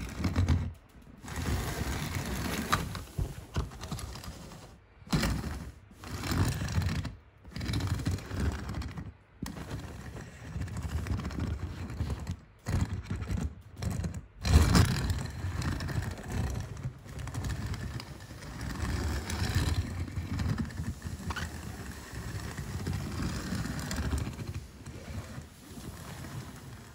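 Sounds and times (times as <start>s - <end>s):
toy car wheels rolling on plastic: 0.0s - 26.9s.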